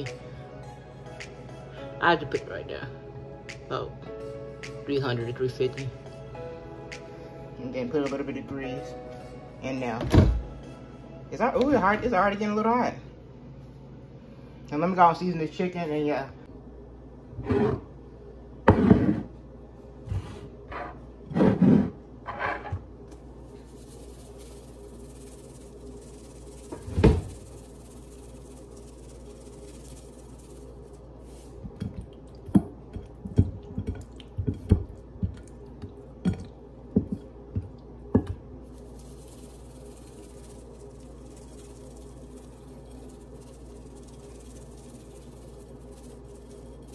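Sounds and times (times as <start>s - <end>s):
faint steady hum: 0.0s - 46.9s
thump on countertop: 10.0s - 10.4s, 18.7s - 19.2s
spice shakers tapping: 23.1s - 46.9s.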